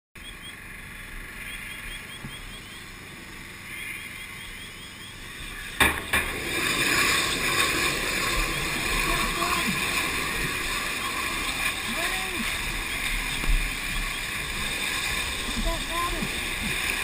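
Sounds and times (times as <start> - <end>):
fire burning with a hiss: 5.3 - 17.0
flames roaring: 5.3 - 17.0
sharp bangs: 5.8 - 9.8.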